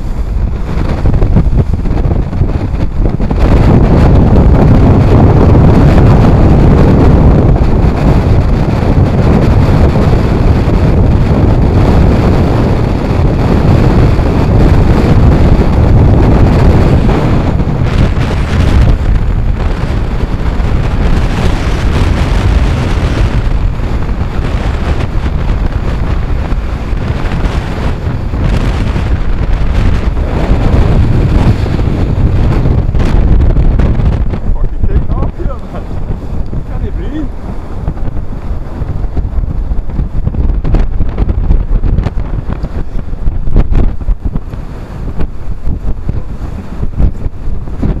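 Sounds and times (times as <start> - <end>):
wind blasting microphone: 0.0 - 48.0
sea breaking against hull: 12.9 - 48.0.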